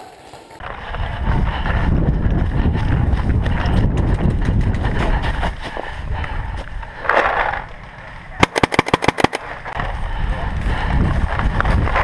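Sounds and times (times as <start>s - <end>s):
wind rumble on microphone: 0.6s - 6.9s, 9.8s - 12.0s
paintball marker shot: 8.4s - 9.4s.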